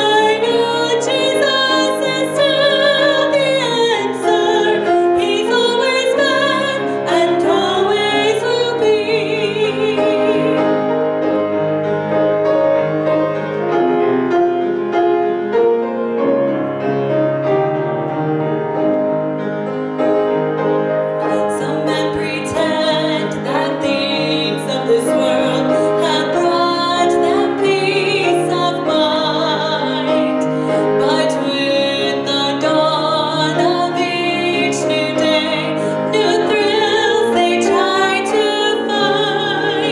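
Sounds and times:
woman singing with vibrato: 0:00.0 - 0:10.9, 0:21.3 - 0:39.9
piano: 0:00.0 - 0:39.9.

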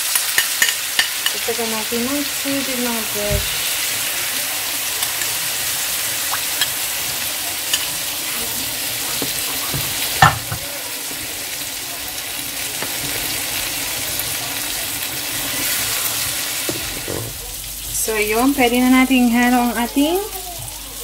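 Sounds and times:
food sizzling in a pan: 0:00.0 - 0:21.0
spatula knocking on a pan: 0:09.2 - 0:11.2.

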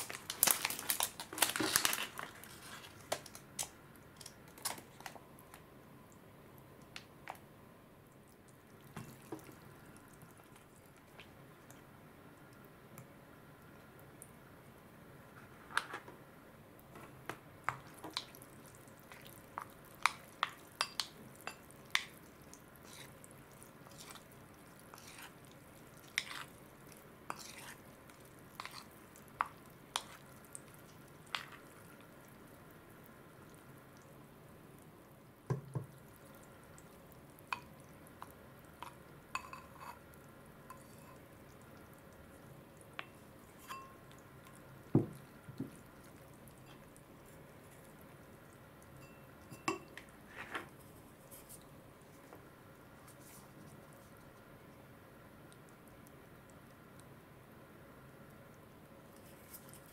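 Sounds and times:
spoon stirring in porcelain bowl: 0:08.8 - 0:11.8, 0:17.0 - 0:32.1, 0:35.5 - 0:40.1, 0:40.7 - 0:41.4, 0:43.0 - 0:51.6.

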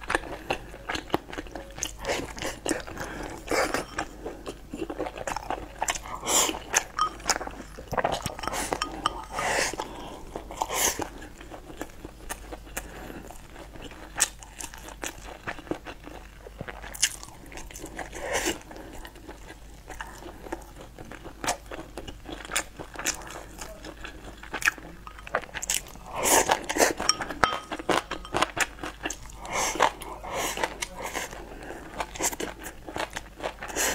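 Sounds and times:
person chewing food: 0:00.0 - 0:33.9
chopsticks clicking on ceramic bowl: 0:06.9 - 0:09.4, 0:27.0 - 0:28.5.

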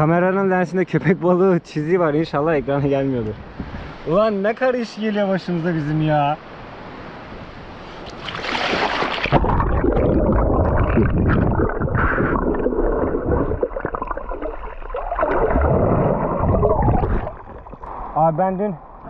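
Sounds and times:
water splashing: 0:08.0 - 0:18.2
muffled underwater gurgling: 0:09.3 - 0:18.2.

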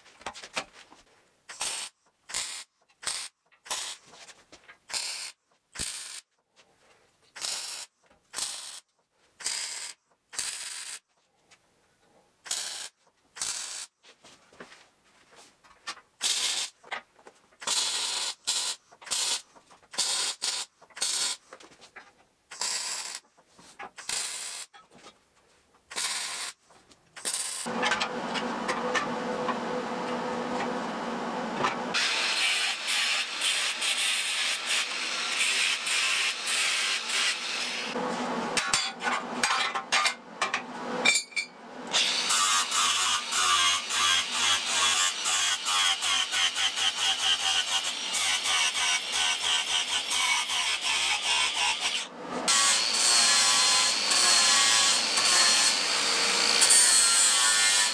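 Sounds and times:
welder crackling bursts: 0:01.5 - 0:04.0, 0:04.9 - 0:06.2, 0:16.2 - 0:16.8, 0:17.6 - 0:21.4, 0:22.5 - 0:23.2, 0:24.0 - 0:24.7, 0:25.9 - 0:26.6, 0:27.2 - 0:27.9
angle grinder grinding steel: 0:31.6 - 0:57.9.

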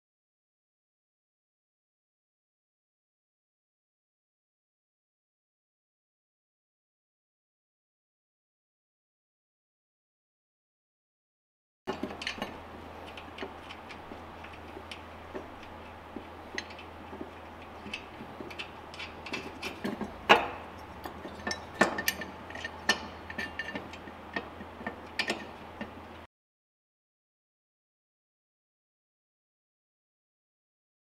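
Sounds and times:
metal pulley clicks and knocks: 0:11.9 - 0:26.3.

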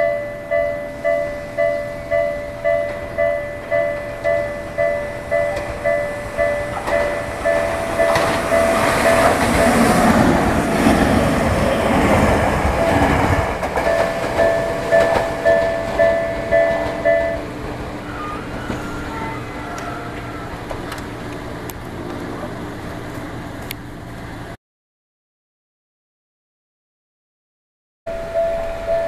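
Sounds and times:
level crossing bell ringing: 0:00.0 - 0:10.1, 0:13.8 - 0:20.6, 0:28.1 - 0:29.0
electric train passing: 0:00.0 - 0:24.6, 0:28.1 - 0:29.0.

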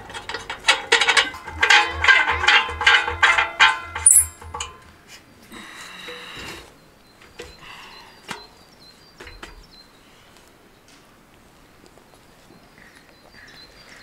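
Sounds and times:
firewood knocking against wood stove: 0:00.0 - 0:04.8.

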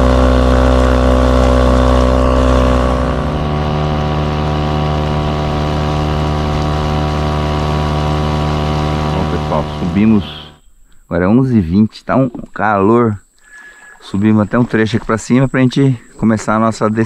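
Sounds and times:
outboard motor running: 0:00.0 - 0:10.6.

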